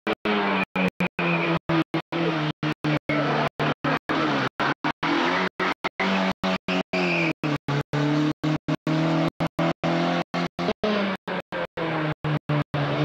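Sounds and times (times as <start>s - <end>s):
rally car engine running hard: 0.0s - 13.0s
tyre squeal: 4.1s - 7.6s.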